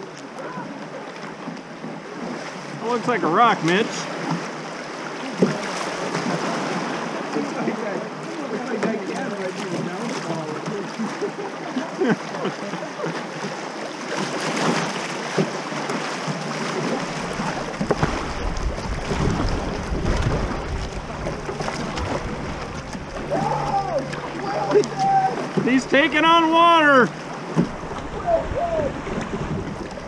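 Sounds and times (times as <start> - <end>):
paddle strokes splashing: 0.0 - 30.0
rushing river water: 0.0 - 30.0
wind rumble on microphone: 17.1 - 25.4, 27.6 - 30.0.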